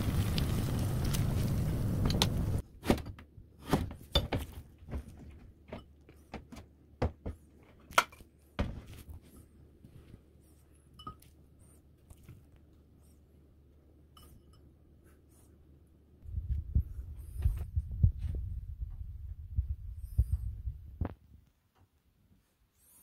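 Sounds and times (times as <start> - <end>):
food frying in hot oil: 0.0 - 2.6.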